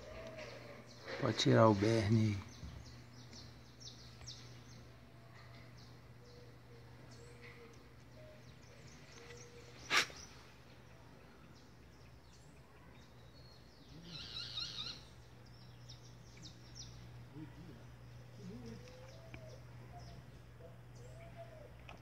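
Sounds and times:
birds chirping: 0:00.0 - 0:22.0
rapid high bird twittering: 0:13.6 - 0:17.0.

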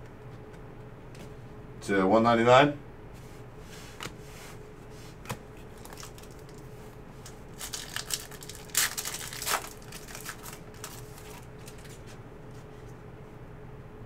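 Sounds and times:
foil wrapper tearing and crinkling: 0:05.7 - 0:06.7, 0:07.3 - 0:12.1.

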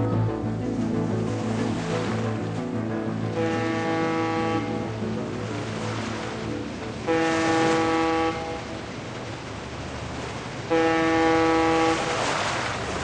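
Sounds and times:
water rushing: 0:00.0 - 0:13.0
ship horns blasting: 0:03.1 - 0:09.0, 0:10.7 - 0:12.7.

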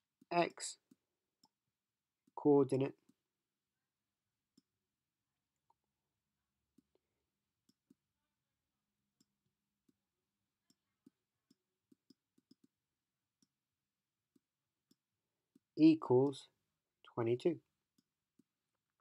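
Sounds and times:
stylus tapping on tablet screen: 0:10.6 - 0:12.8.

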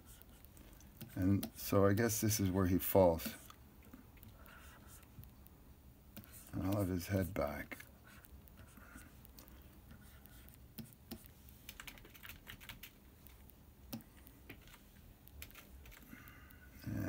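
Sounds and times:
keyboard keys clicking: 0:10.8 - 0:13.0, 0:13.9 - 0:16.0.

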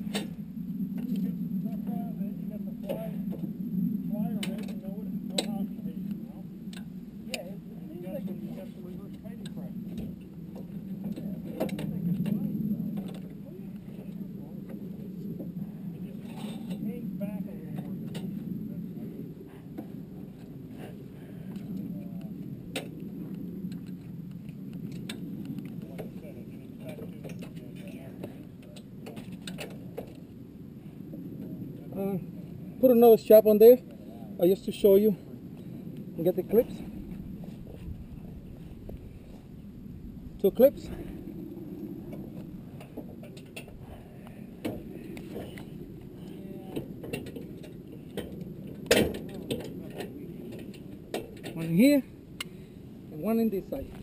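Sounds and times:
steady low rumble: 0:00.0 - 0:54.0.

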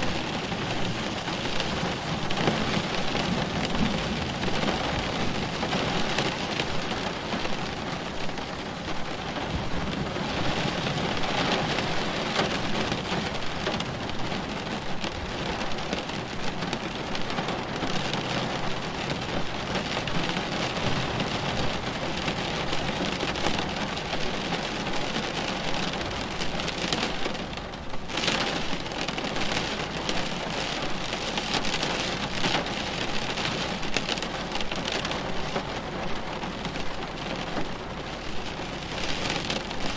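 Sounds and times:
thunder rumbling: 0:00.0 - 0:06.4
heavy rain pattering: 0:00.0 - 0:39.9.

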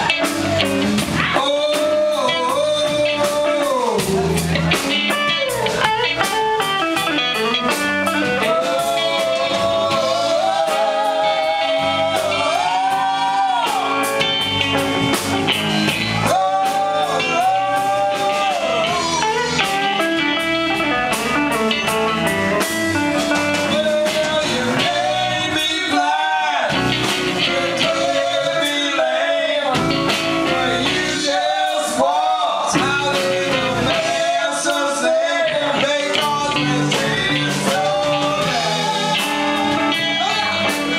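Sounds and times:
bass: 0:00.0 - 0:40.9
drums: 0:00.0 - 0:40.9
electric guitars: 0:00.0 - 0:40.9
women singing: 0:08.3 - 0:13.6, 0:27.4 - 0:29.9, 0:30.5 - 0:40.6.

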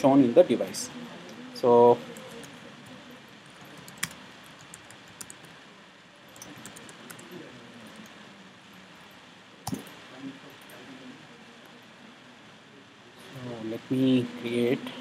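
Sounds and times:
computer keyboard typing: 0:02.0 - 0:05.6, 0:06.3 - 0:08.1, 0:09.6 - 0:09.9.

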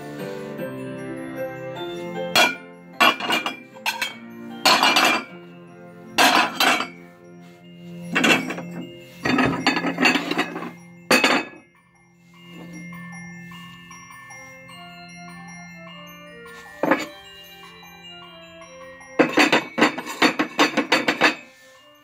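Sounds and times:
background music: 0:00.0 - 0:22.0
porcelain plates clinking: 0:02.3 - 0:05.3, 0:06.2 - 0:07.0, 0:08.1 - 0:11.6, 0:16.8 - 0:17.2, 0:19.2 - 0:21.5.

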